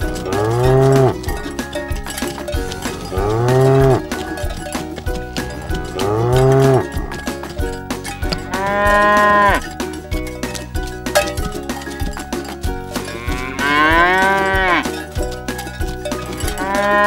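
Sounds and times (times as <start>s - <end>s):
steady clicking beat: 0.0s - 17.0s
cow mooing: 0.2s - 1.4s, 2.6s - 4.4s, 5.6s - 7.3s, 8.2s - 9.7s, 13.0s - 15.1s, 16.4s - 17.0s.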